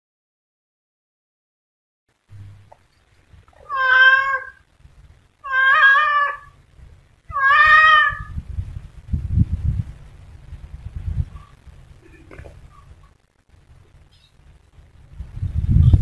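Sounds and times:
low rumbling noise: 2.1s - 16.0s
cat meowing: 3.6s - 4.6s, 5.4s - 6.6s, 7.3s - 8.4s.

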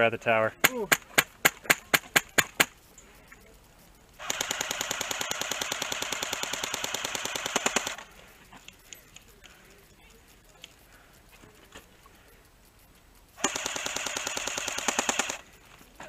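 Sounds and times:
airsoft gun rapid burst: 0.6s - 2.8s, 4.2s - 8.4s, 13.4s - 15.7s.

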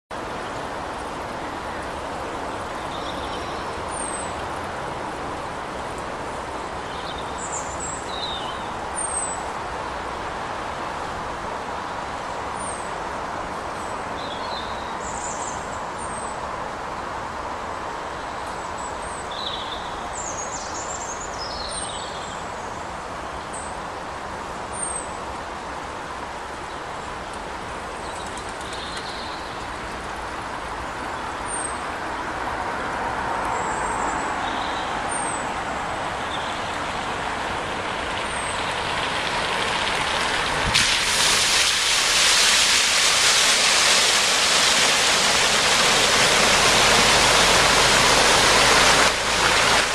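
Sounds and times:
traffic on wet road: 0.1s - 49.9s
car on wet tarmac: 0.2s - 14.2s, 24.1s - 49.9s
small birds chirping: 27.9s - 32.3s.

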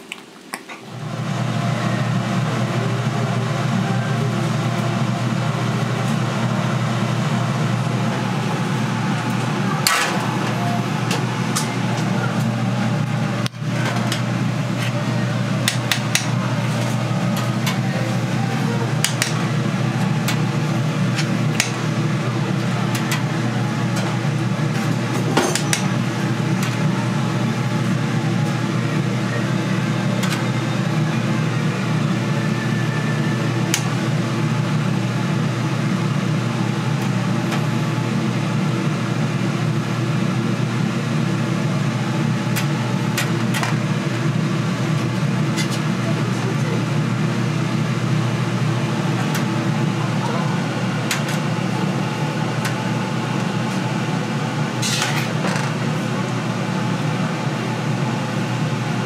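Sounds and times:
low mechanical hum: 0.0s - 59.0s.

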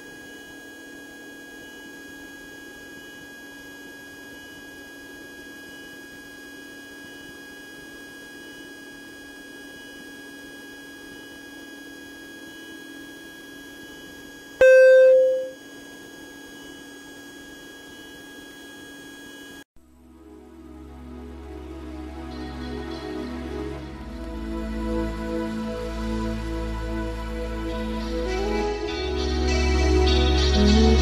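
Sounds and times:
faint steady whine: 13.9s - 17.0s
loud electronic beep: 14.6s - 15.6s.

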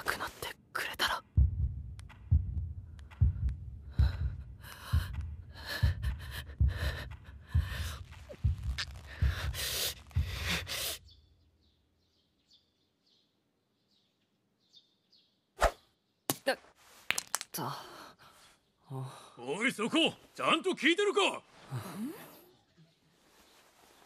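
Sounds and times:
heartbeat thumping: 1.2s - 11.2s.

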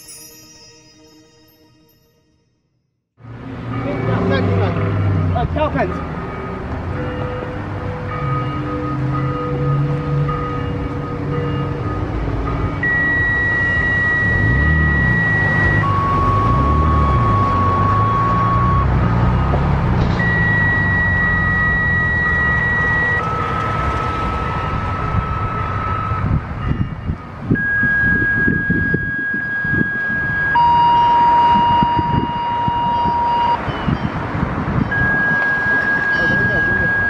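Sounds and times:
two-tone beeps: 12.8s - 19.6s, 20.2s - 23.4s, 27.6s - 34.2s, 34.8s - 37.0s.

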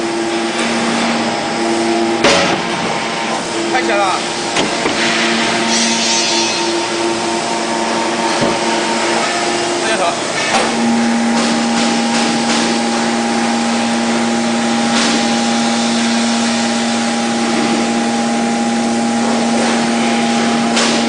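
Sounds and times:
hydraulic hum with whine: 0.0s - 21.0s.

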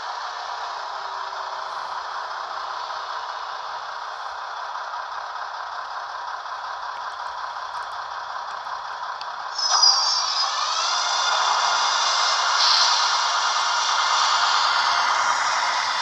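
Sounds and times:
thin diesel engine sound from loudspeaker: 0.0s - 16.0s
high whine: 9.5s - 16.0s.

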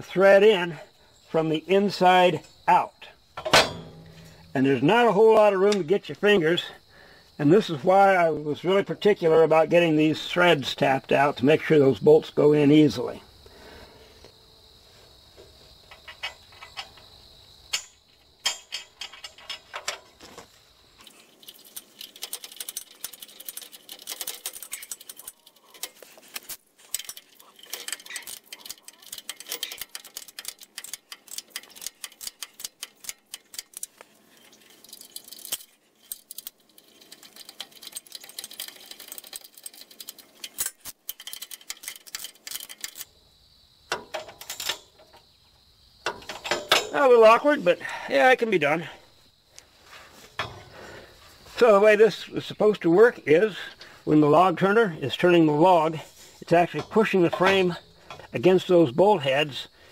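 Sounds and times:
steel clinking on steel: 3.4s - 4.6s, 17.7s - 20.5s, 21.1s - 43.1s, 43.9s - 45.2s, 46.0s - 47.4s
ratchet wrench clicking: 21.4s - 43.1s.

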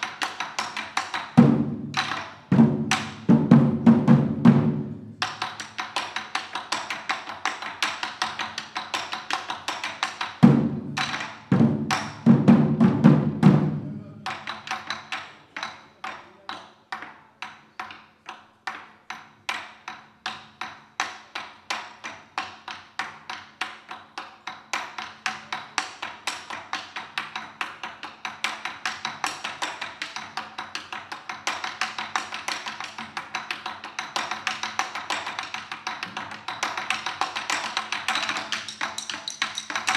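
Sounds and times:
drums beaten with sticks: 1.0s - 6.3s, 10.4s - 15.1s, 35.9s - 39.9s.

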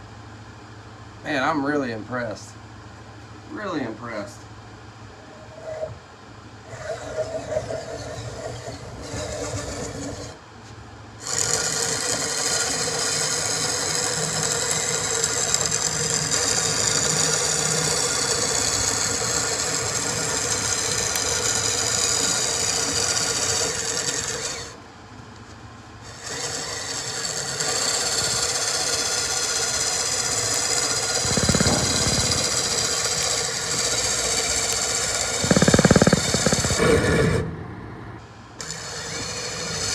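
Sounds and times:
die scraping wooden rod: 5.4s - 6.0s, 6.7s - 10.4s, 11.2s - 24.8s, 26.0s - 37.4s
electric drill motor whining: 6.7s - 10.4s, 11.2s - 24.8s, 26.0s - 37.4s, 38.6s - 39.9s.

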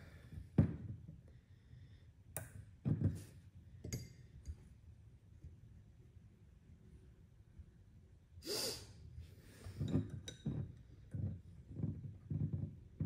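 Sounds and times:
sharp breath out: 8.4s - 9.7s.

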